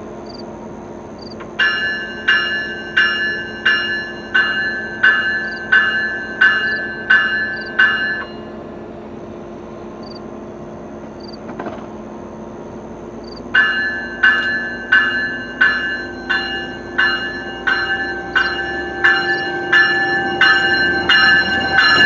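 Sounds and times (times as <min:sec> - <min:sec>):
crickets chirping: 0:00.0 - 0:22.0
railroad bell ringing: 0:01.2 - 0:08.9, 0:13.2 - 0:22.0.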